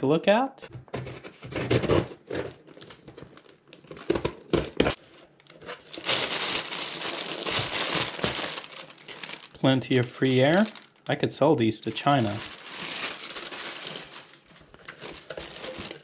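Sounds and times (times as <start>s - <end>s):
cardboard box being cut open: 1.0s - 2.6s
plastic air-pillow packing crinkling: 4.9s - 16.0s.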